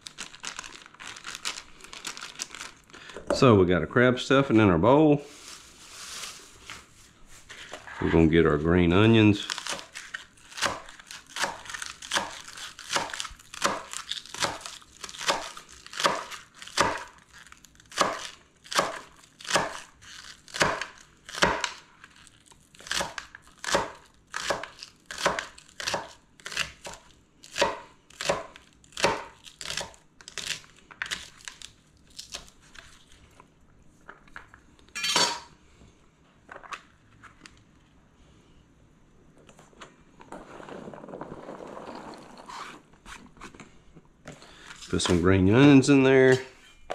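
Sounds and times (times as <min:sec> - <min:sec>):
knife chopping on plastic cutting board: 0:10.6 - 0:17.2, 0:20.6 - 0:21.8, 0:22.9 - 0:27.0, 0:27.6 - 0:30.0.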